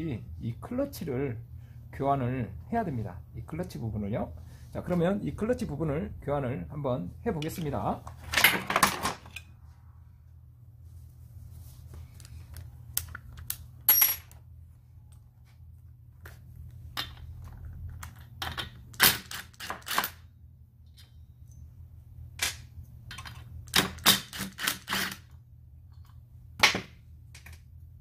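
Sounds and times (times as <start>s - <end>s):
faint low hum: 9.2s - 18.9s.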